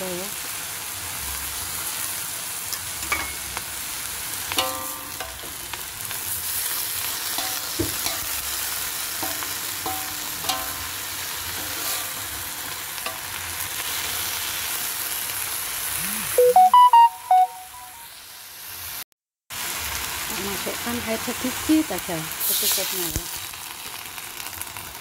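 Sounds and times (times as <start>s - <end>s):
spinach sizzling in wok: 0.0s - 16.2s, 18.1s - 25.0s
metal spatula scraping wok: 4.4s - 14.2s.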